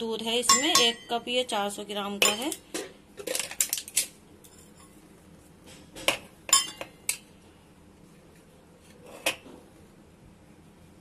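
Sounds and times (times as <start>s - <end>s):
metal spoon clinking on steel bowl: 0.4s - 1.2s, 2.2s - 2.6s, 6.5s - 7.2s.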